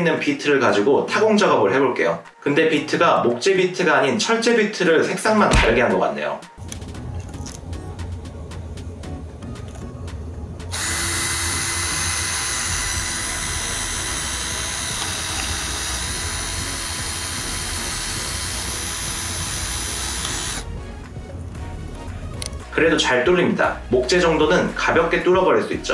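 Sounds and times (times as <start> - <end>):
cordless drill boring into wood: 10.7 - 20.7.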